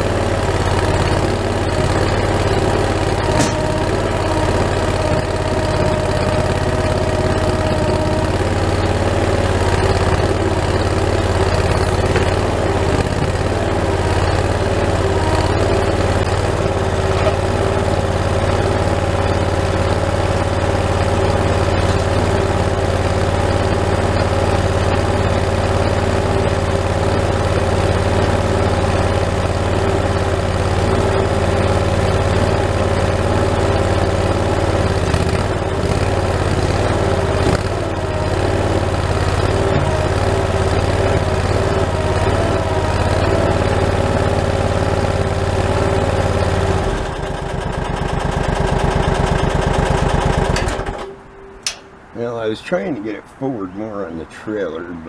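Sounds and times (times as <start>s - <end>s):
skid steer engine idling: 0.0s - 55.0s.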